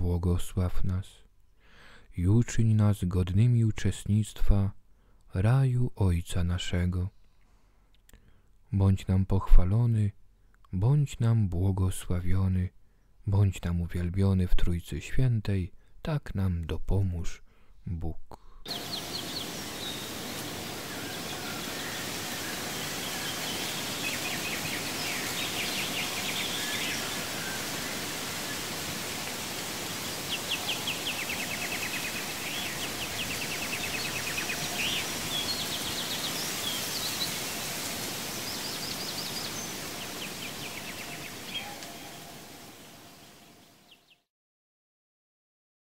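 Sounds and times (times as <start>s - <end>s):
steady hiss: 18.7s - 44.0s
small birds chirping: 18.7s - 44.2s.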